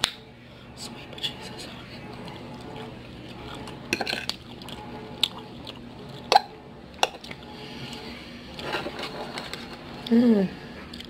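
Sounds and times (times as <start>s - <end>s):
wet chewing sounds: 2.2s - 6.4s.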